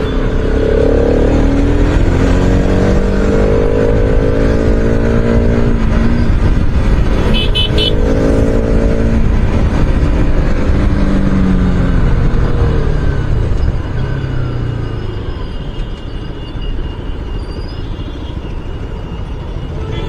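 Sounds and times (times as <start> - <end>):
wind rumble: 1.2 - 15.4
high horn beeps: 7.2 - 8.2, 14.7 - 20.0.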